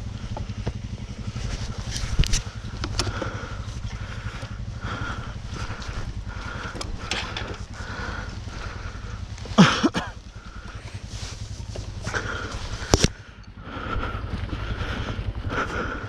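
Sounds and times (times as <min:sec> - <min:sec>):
low rumble: 0:00.0 - 0:16.0
rustling and scraping: 0:10.8 - 0:13.2.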